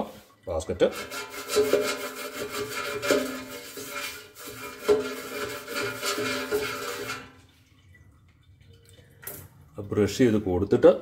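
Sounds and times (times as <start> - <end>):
brush scrubbing metal basket: 0.0 - 7.4.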